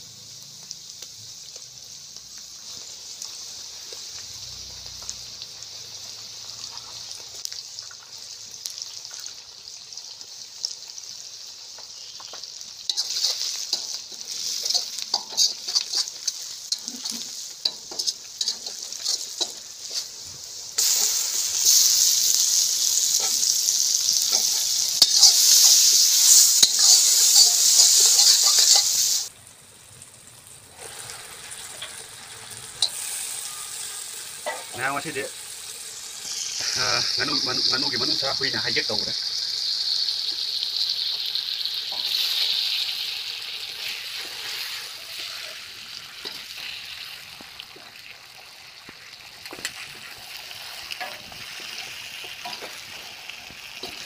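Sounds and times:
food sizzling in hot oil: 0.0 - 54.0
metal spatula scraping a pan: 12.9 - 20.2, 20.8 - 29.3, 49.4 - 52.8.

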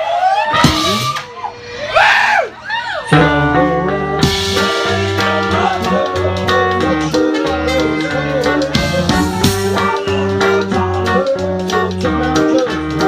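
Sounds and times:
drum kit: 0.5 - 1.3, 3.2 - 13.0
electric keyboard chords: 3.1 - 13.0
electric bass: 3.2 - 13.0.

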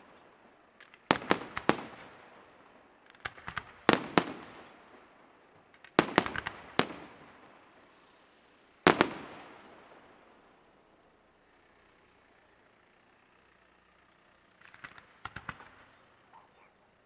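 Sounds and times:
firework bangs echoing: 0.0 - 7.9, 8.8 - 10.4, 14.6 - 16.2
small firework pops: 0.0 - 8.0, 8.9 - 10.2, 14.3 - 16.6.

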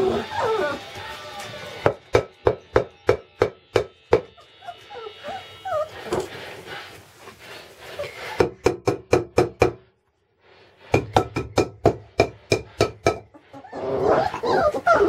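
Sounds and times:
wavering high-pitched cries: 0.0 - 1.9, 4.1 - 6.3.

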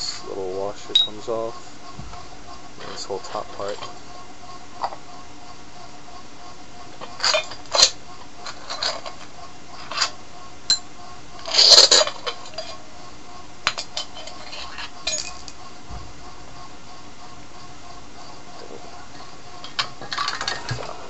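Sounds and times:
metal parts clinking: 13.8 - 15.5.

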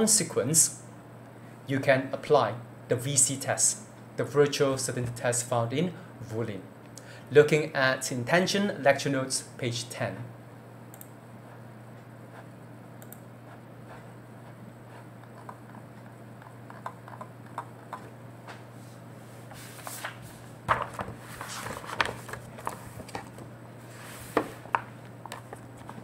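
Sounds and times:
steady low hum: 0.0 - 26.0
computer mouse clicking: 10.9 - 11.2, 13.0 - 14.0, 14.9 - 18.1.

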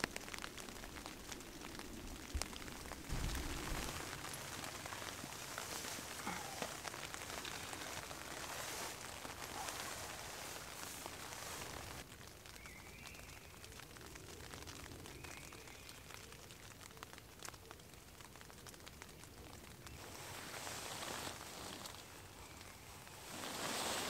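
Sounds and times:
rain pattering on tent fabric: 0.0 - 24.0.

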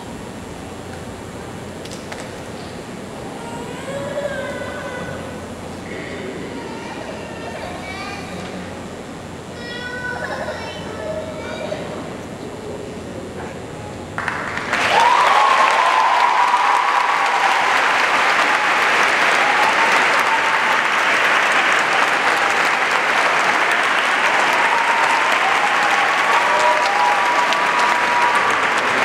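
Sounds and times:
audience applauding: 14.2 - 29.0
cheering shouts: 14.5 - 29.0.

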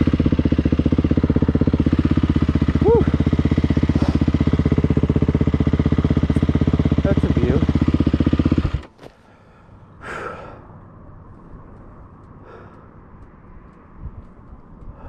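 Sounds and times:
person sighing: 2.8 - 3.2
soft breath: 9.1 - 11.7, 12.3 - 13.2.

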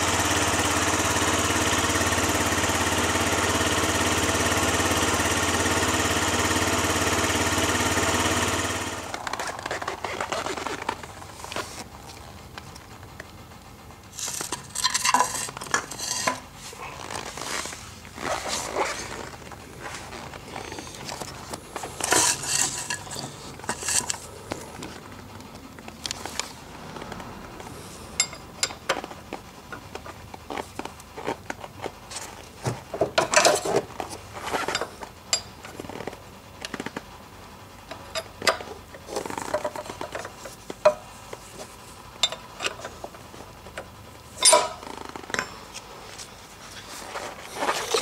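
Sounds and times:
wrench clinking on bolt: 44.4 - 44.8.

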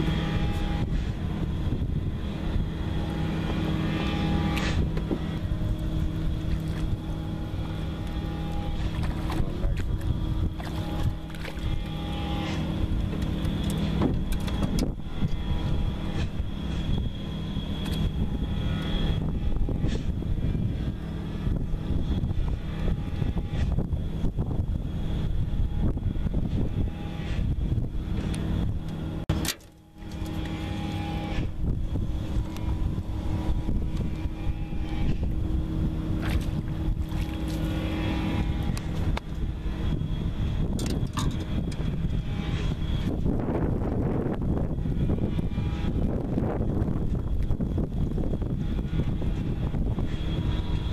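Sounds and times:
boat motor humming: 0.0 - 50.9
low drone: 0.0 - 50.9
wind rumbling on microphone: 0.0 - 50.9
fish splashing at water surface: 36.2 - 38.3.

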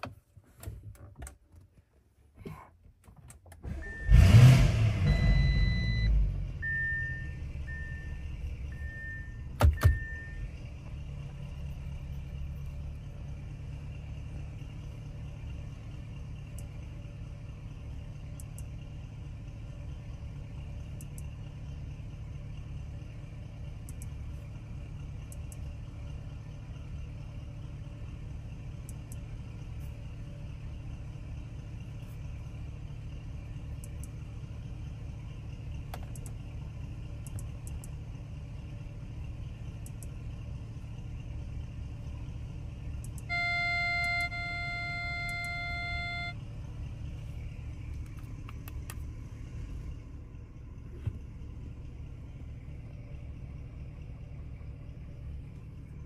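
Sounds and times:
car engine idling: 1.4 - 56.0
car electronic chime: 43.2 - 46.5.

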